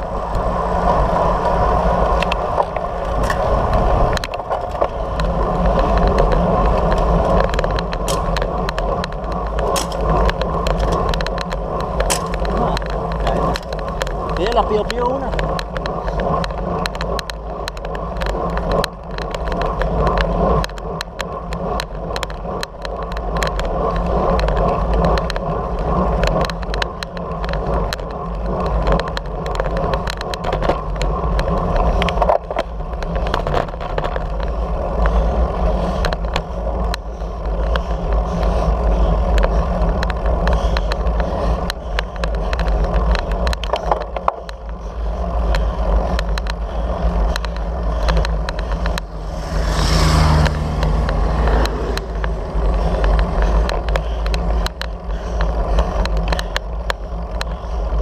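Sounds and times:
bicycle clicks and rattles: 0.0 - 58.0
tyres on asphalt: 0.0 - 58.0
wind rumbling on microphone: 0.0 - 58.0.

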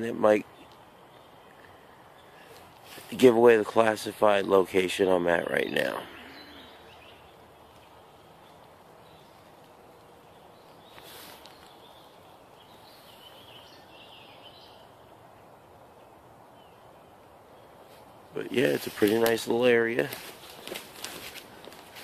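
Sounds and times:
distant birds chirping: 0.0 - 22.0
outdoor hiss: 0.0 - 22.0
brief rustle: 10.9 - 11.8, 18.7 - 22.0.

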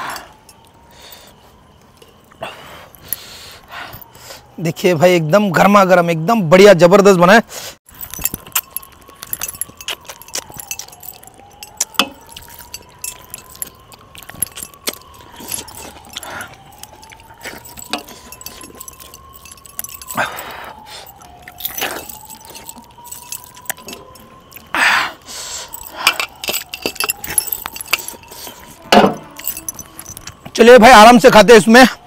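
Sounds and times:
metal clinks on steel plate: 8.0 - 13.6, 28.9 - 30.4.

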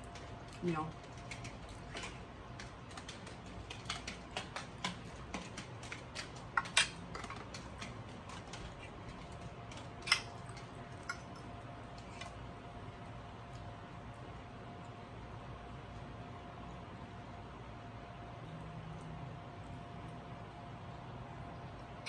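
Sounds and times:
chewing: 0.0 - 12.5.

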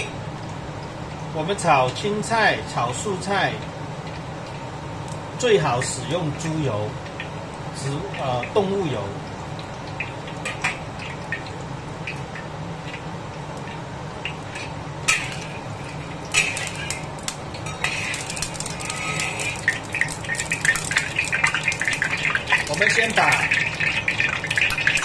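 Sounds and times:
oil crackling and sizzling: 0.0 - 25.0
steady low hum: 0.0 - 25.0
spatula scraping a steel wok: 17.7 - 19.7.

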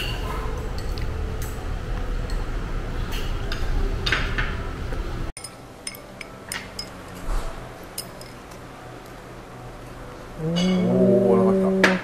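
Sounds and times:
crockery and cutlery clinking: 0.0 - 1.6, 5.4 - 8.8, 10.4 - 11.2.

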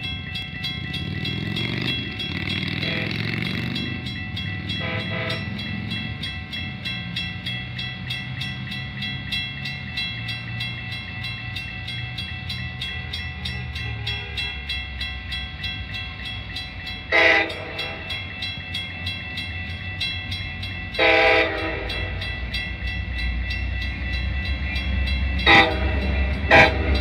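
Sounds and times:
crossing signal bells ringing: 0.0 - 27.0
train horn blasts: 2.7 - 3.5, 4.7 - 5.6, 13.4 - 14.7, 17.1 - 18.1, 21.0 - 22.3, 25.4 - 27.0.

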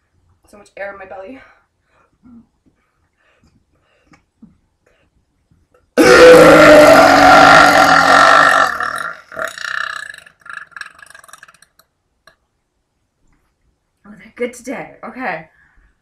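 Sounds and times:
woman burping loudly: 6.0 - 11.8.

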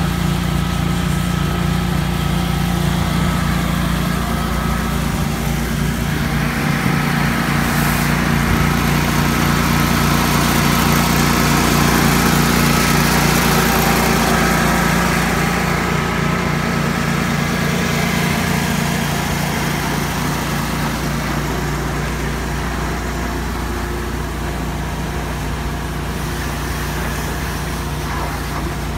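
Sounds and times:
engine humming steadily: 0.0 - 28.9.

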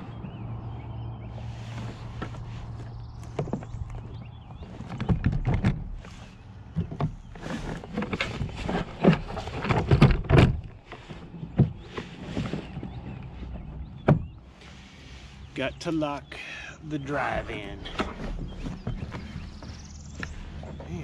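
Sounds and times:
gear knocking against kayak hull: 1.8 - 14.4, 17.9 - 21.0.

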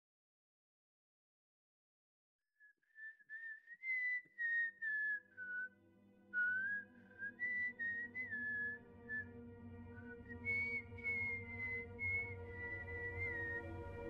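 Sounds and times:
person whistling a slow tune: 2.9 - 5.7, 6.4 - 9.4, 10.0 - 14.0
low steady drone: 7.7 - 14.0.

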